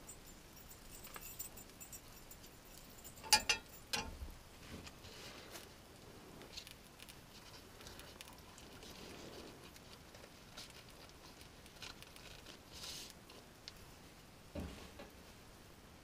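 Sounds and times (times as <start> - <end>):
tortilla rustling as folded: 6.4 - 14.1.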